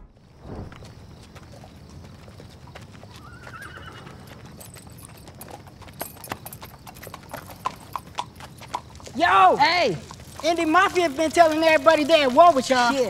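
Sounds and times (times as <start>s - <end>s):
hooves clip-clopping on pavement: 0.6s - 13.0s
horse whinny: 3.2s - 4.4s.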